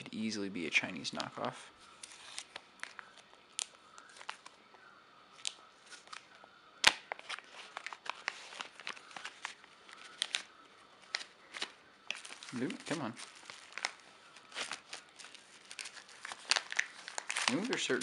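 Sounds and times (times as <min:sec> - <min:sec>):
plastic bag crinkling: 0:07.0 - 0:18.0.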